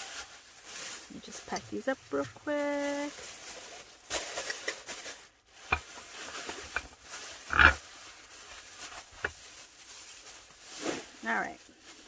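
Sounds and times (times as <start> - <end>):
plastic bags rustling and crinkling: 0.0 - 12.0.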